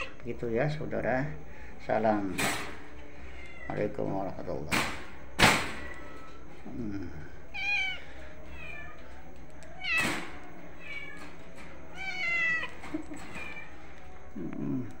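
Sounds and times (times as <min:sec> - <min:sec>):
cat meowing: 0:00.0 - 0:00.2, 0:03.3 - 0:03.9, 0:07.5 - 0:09.0, 0:09.7 - 0:11.2, 0:11.9 - 0:13.8.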